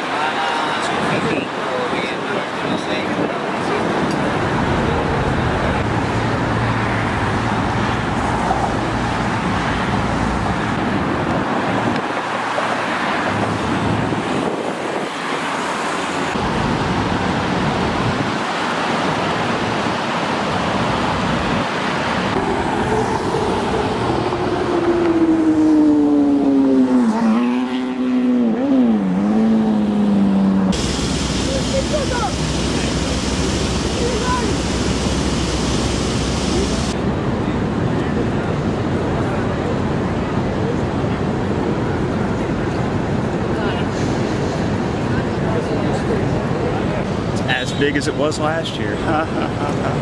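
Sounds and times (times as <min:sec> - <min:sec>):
road traffic noise: 0:00.0 - 0:50.0
vehicle engine passing: 0:21.8 - 0:37.0.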